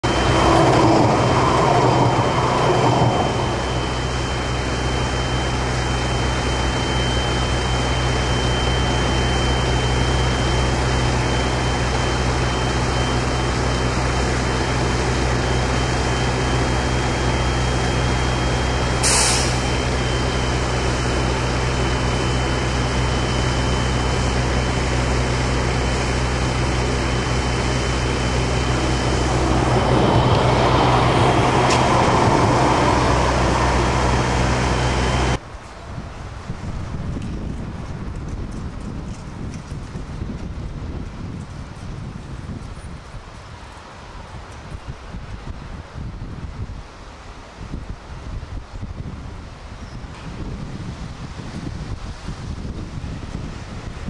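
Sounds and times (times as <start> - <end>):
thin high whine: 0.0 - 35.8
tram equipment humming: 0.0 - 47.6
short hiss: 19.0 - 19.7.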